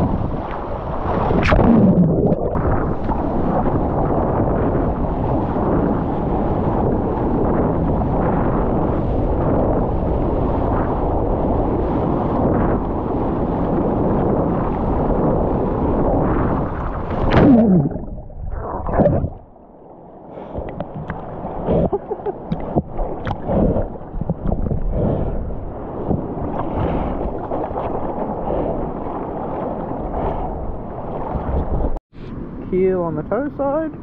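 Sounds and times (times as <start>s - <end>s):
underwater gurgling: 0.0s - 4.7s, 16.0s - 32.0s
seawater splashing: 0.0s - 32.0s.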